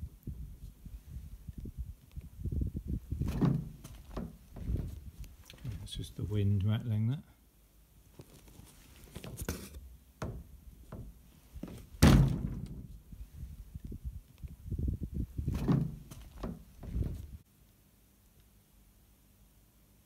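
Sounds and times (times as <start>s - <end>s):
wooden object rattling: 3.2s - 5.0s, 15.5s - 17.2s.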